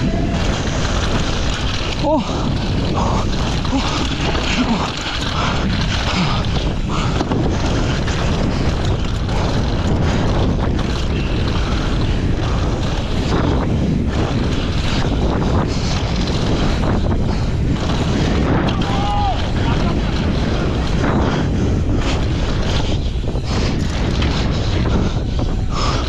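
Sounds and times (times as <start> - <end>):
bike knocking and rattling: 0.0 - 26.0
tyres rolling over dirt and stones: 0.0 - 26.0
wind rushing over microphone: 0.0 - 26.0.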